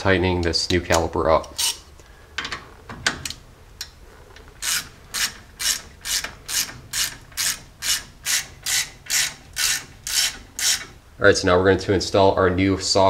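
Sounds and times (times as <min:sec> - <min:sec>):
socket ratchet clicking: 0:04.6 - 0:10.9.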